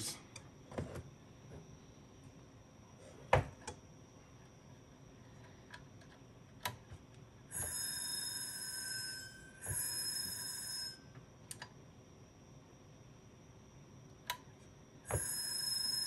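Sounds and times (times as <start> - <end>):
hard drive motor whine: 3.7 - 11.5, 12.2 - 16.0.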